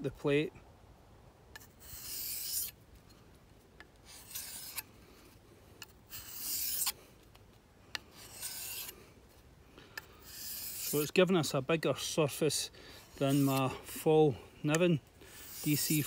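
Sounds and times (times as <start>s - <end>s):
knife blade on sharpening plate: 1.6s - 2.7s, 4.1s - 4.8s, 6.1s - 6.9s, 8.2s - 8.9s, 10.2s - 11.1s, 15.3s - 16.0s.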